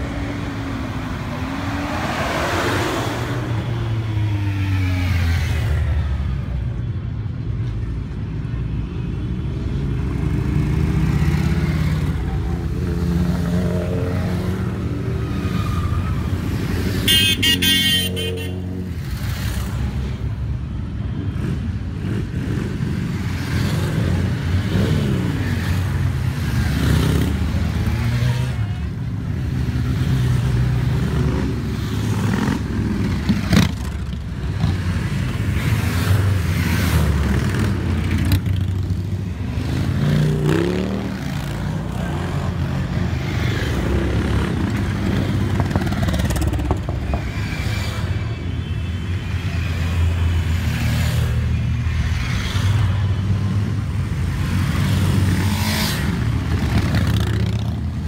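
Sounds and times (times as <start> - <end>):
horn honking: 17.0 - 18.6.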